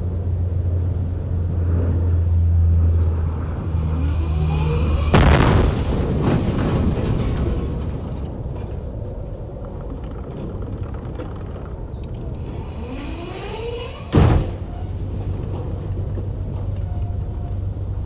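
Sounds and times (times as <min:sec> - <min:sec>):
rising whine: 0:00.0 - 0:06.0
heavy machinery rumble: 0:00.0 - 0:18.0
loud metal crash: 0:04.3 - 0:08.3, 0:14.1 - 0:14.9.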